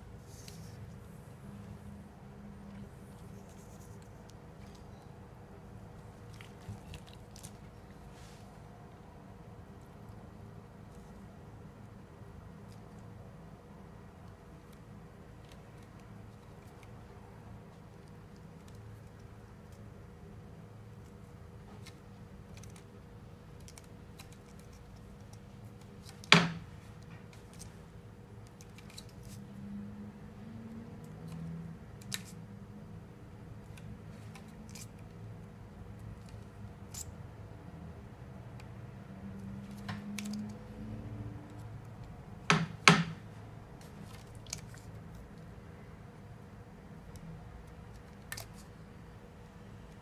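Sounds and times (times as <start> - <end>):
grip tape crackling and rustling: 6.0 - 8.4.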